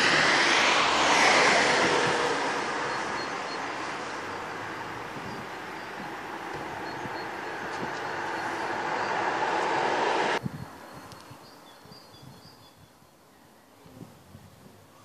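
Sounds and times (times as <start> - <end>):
car passing on wet street: 0.0 - 10.4.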